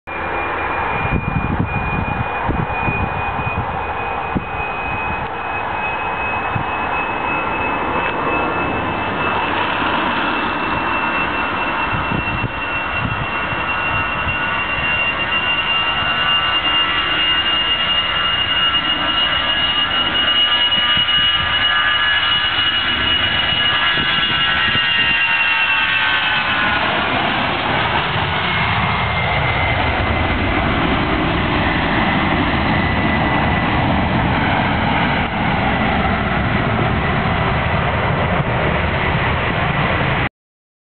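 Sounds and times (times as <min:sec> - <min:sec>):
jet engines whining at takeoff: 0:00.1 - 0:40.3.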